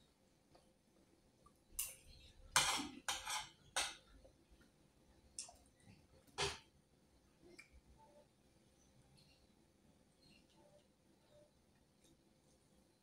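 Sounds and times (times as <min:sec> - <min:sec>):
cutlery scraping on a plate: 0:02.5 - 0:04.0.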